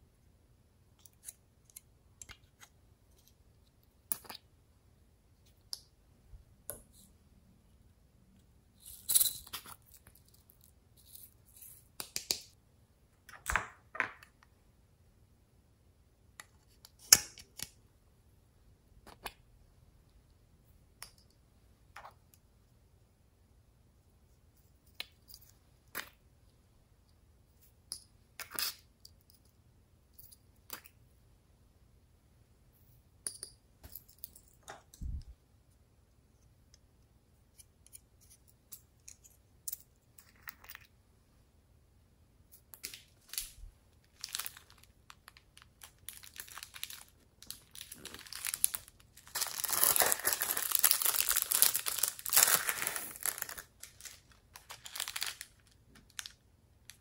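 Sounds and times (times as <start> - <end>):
packet crinkling and tearing: 44.1 - 56.4.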